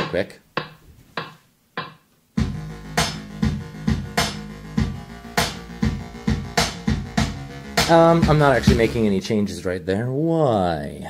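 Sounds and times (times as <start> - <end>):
synth bass line: 2.4 - 9.2
drum hit: 4.8 - 9.0.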